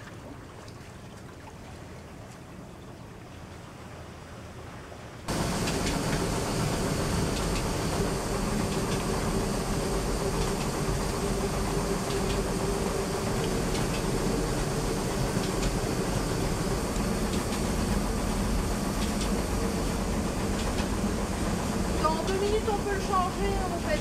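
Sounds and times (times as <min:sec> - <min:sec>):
water running: 0:05.3 - 0:24.0.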